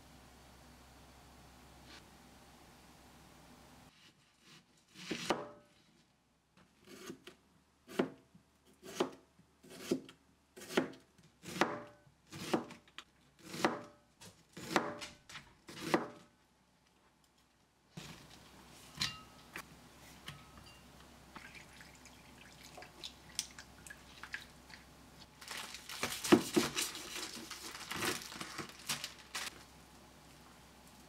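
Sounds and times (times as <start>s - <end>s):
knife slicing onion: 3.9s - 5.8s, 6.6s - 16.3s.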